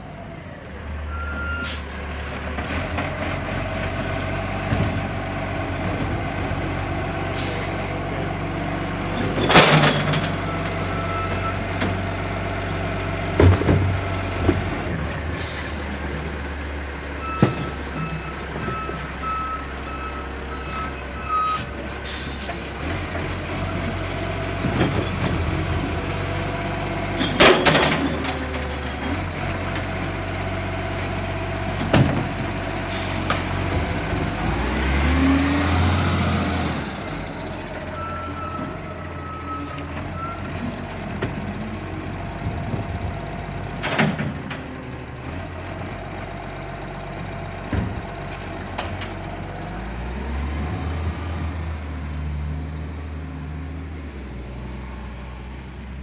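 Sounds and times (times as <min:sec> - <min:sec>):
diesel truck engine running: 0:00.0 - 0:56.0
air brake hiss: 0:01.6 - 0:01.9, 0:21.5 - 0:22.5.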